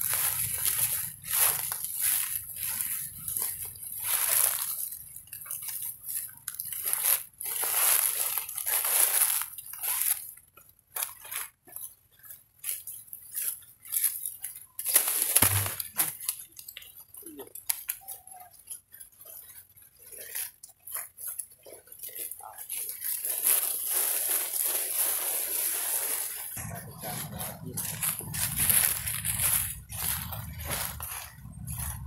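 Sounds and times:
dry leaves crackling and rustling: 0.0s - 32.0s
heavy crunch with dull thump: 15.3s - 16.0s.

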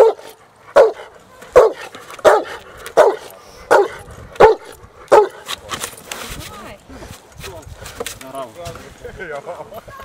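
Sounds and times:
dog barking: 0.0s - 5.4s.

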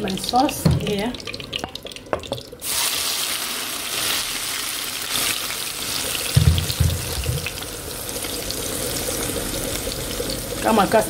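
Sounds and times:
sauce sizzling in hot oil: 0.0s - 11.0s
dull low thumps: 6.4s - 7.5s.

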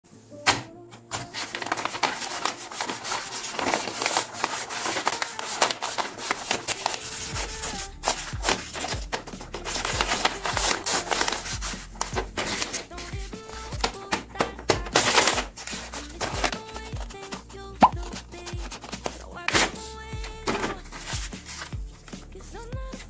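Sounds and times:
paper bag rustling: 1.1s - 21.8s
sharp paper crinkle: 1.1s - 22.2s
music with low beat: 7.1s - 14.9s, 19.5s - 23.0s.

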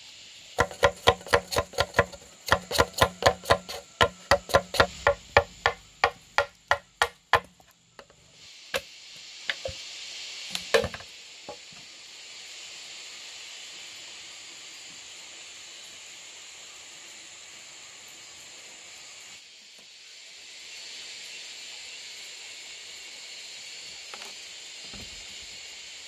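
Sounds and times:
steady high hiss: 0.0s - 26.0s
machete chopping bamboo: 0.6s - 7.6s, 9.5s - 9.8s, 10.5s - 11.0s.

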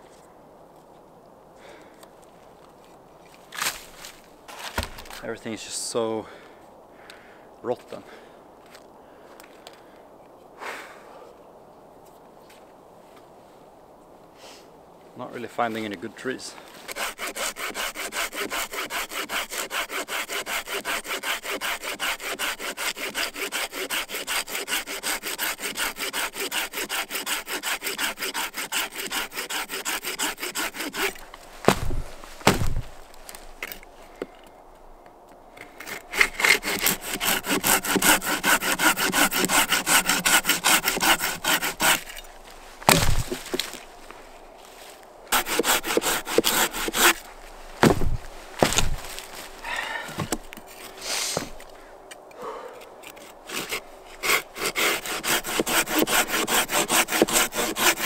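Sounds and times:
boot stomping log: 4.6s - 5.2s, 31.6s - 33.0s, 42.8s - 43.8s, 47.8s - 49.2s, 50.1s - 50.4s
hand saw cutting log: 16.9s - 33.0s, 35.7s - 42.3s, 42.9s - 43.8s, 45.3s - 49.2s, 53.0s - 58.0s.

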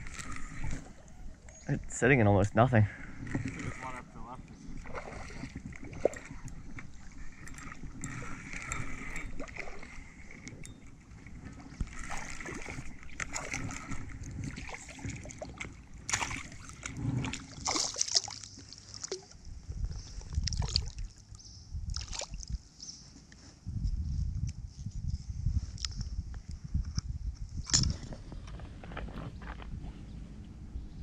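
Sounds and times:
creek water splashing and gurgling: 0.0s - 19.5s, 20.1s - 22.6s.

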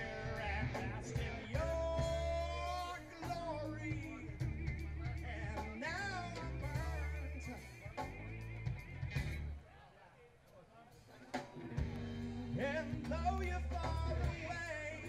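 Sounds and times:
ska-punk band playing: 0.0s - 9.6s, 10.9s - 15.0s.

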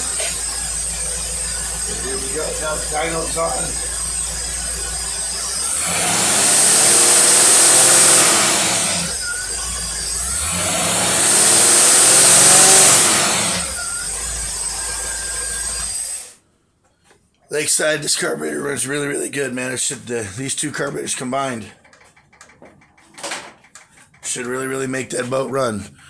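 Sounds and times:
engine idling: 0.0s - 16.3s
engine revving: 0.0s - 16.4s.

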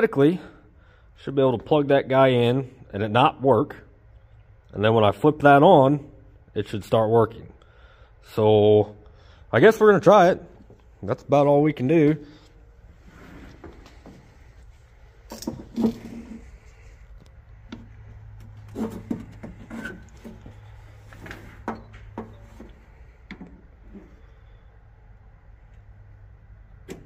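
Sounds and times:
steady low hum: 0.0s - 27.0s
handling knocks and clicks: 15.2s - 16.4s, 17.1s - 23.7s.

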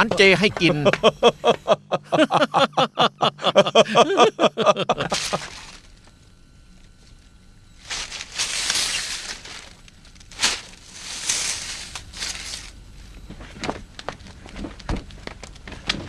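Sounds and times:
twig broom sweeping ground: 5.1s - 5.9s, 7.8s - 12.8s.

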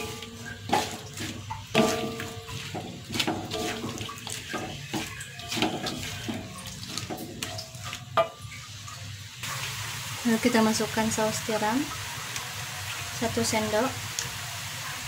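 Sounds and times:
spatula squeaks: 0.0s - 8.2s
spatula scraping a wok: 0.0s - 8.7s
cabbage frying hiss: 0.0s - 15.0s.

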